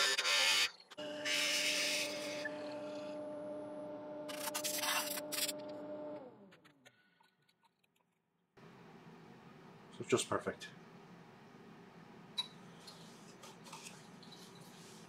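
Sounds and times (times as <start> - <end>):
wood lathe humming: 1.0 - 6.4.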